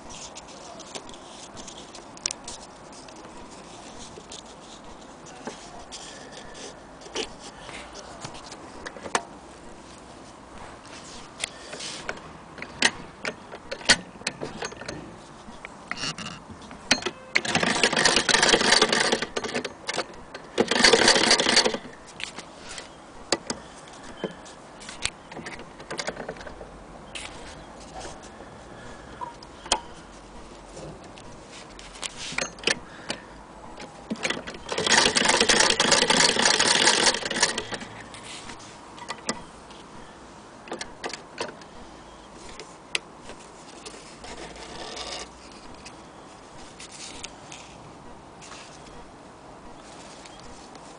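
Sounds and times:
clicks and knocks of handling: 0:00.1 - 0:09.3, 0:10.8 - 0:28.3, 0:40.7 - 0:41.7
sewing machine clatter: 0:17.2 - 0:22.0, 0:34.1 - 0:37.9.

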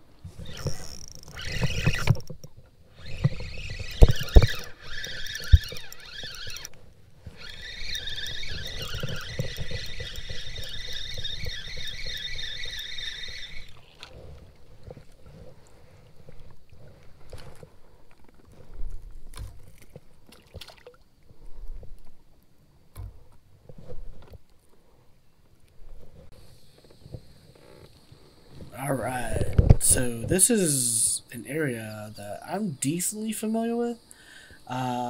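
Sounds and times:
spinning reel gears whirring: 0:00.3 - 0:15.2.

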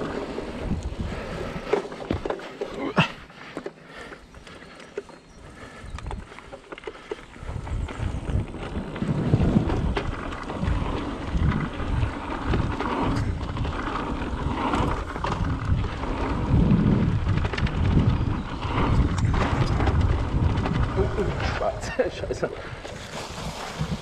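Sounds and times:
wind buffeting microphone: 0:00.0 - 0:02.3, 0:03.9 - 0:24.0
bike rattling over bumps: 0:00.0 - 0:24.0.

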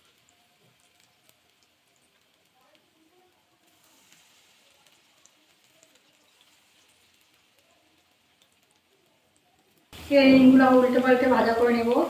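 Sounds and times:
battered food deep-frying in oil: 0:00.0 - 0:12.0.

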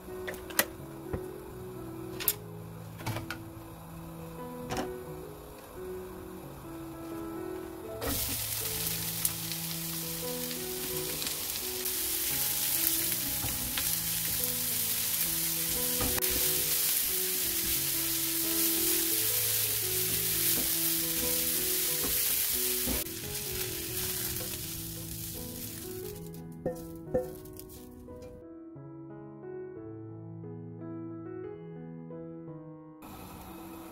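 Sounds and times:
onions sizzling in a frying pan: 0:02.6 - 0:28.0, 0:33.0 - 0:33.9.

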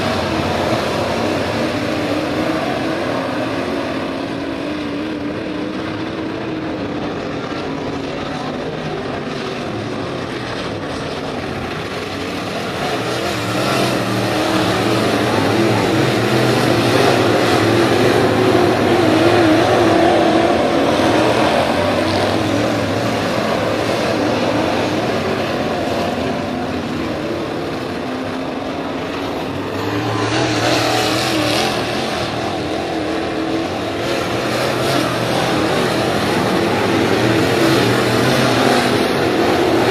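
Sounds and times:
race car engines: 0:00.0 - 0:39.9.

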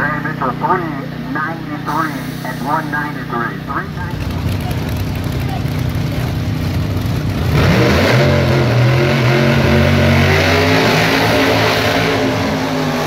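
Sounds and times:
race car engines at full throttle: 0:00.0 - 0:13.0.

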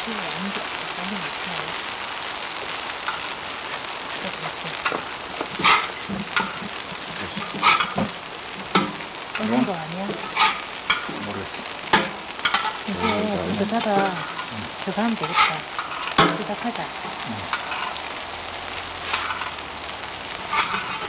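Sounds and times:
pancakes sizzling in oil: 0:00.0 - 0:21.0
utensils scraping and clinking: 0:04.8 - 0:11.2, 0:11.9 - 0:16.5, 0:17.4 - 0:18.0, 0:19.0 - 0:19.6, 0:20.4 - 0:21.0.

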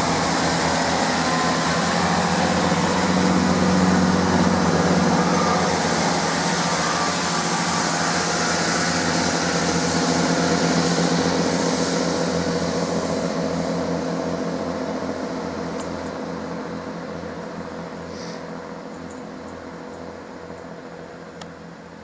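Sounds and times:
diesel train engines running: 0:00.0 - 0:22.0
rail noise: 0:00.0 - 0:22.0.

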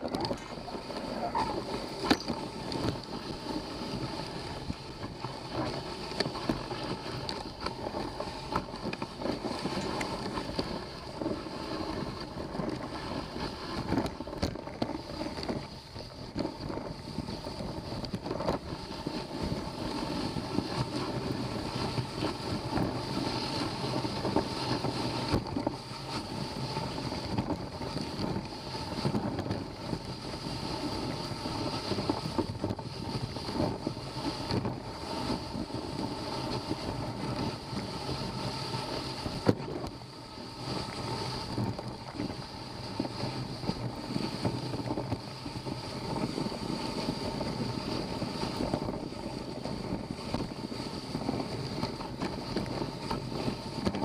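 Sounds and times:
snow crunching: 0:00.0 - 0:13.8
sled runners hissing on snow: 0:00.0 - 0:54.0
wind on microphone: 0:00.0 - 0:54.0.

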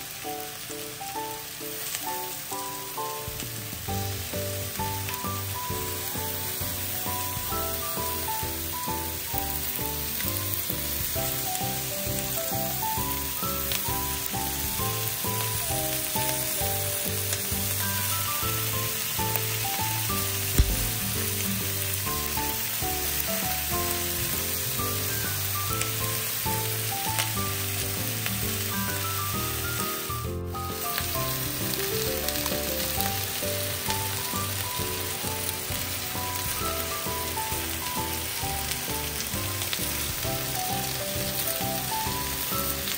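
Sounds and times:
background music: 0:00.0 - 0:42.9
skewers sizzling in a frying pan: 0:00.0 - 0:42.9
sharp knock: 0:20.6 - 0:21.3.

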